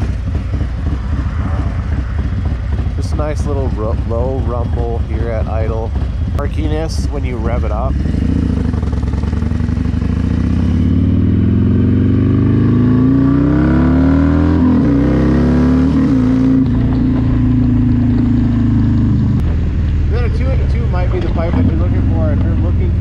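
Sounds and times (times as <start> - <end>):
motorcycle engine accelerating: 0.0 - 23.0.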